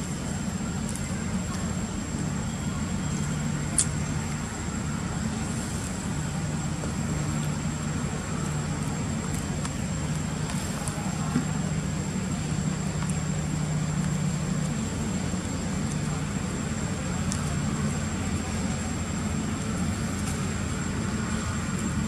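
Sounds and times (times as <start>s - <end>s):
distant traffic hum: 0.0s - 22.0s
high-pitched whine: 0.0s - 22.0s
faint clicks: 17.2s - 17.6s.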